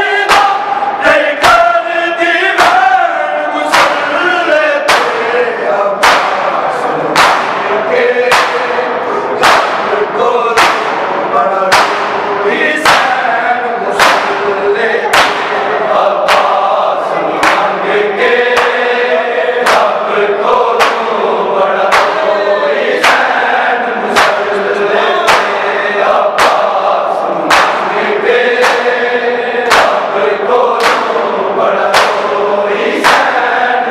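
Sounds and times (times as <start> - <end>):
men chanting together: 0.0 - 33.9
hands slapping chest: 4.9 - 5.2, 6.0 - 6.4, 7.2 - 7.6, 8.3 - 8.7, 9.4 - 9.9, 10.6 - 11.0, 11.7 - 12.2, 12.8 - 13.2, 14.0 - 14.4, 15.1 - 15.6, 18.6 - 18.8, 19.6 - 19.9, 20.8 - 21.1, 21.9 - 22.2, 24.2 - 24.4, 25.3 - 25.6, 26.4 - 26.7, 27.5 - 27.9, 28.6 - 28.9, 29.7 - 30.0, 30.8 - 31.1, 31.9 - 32.3.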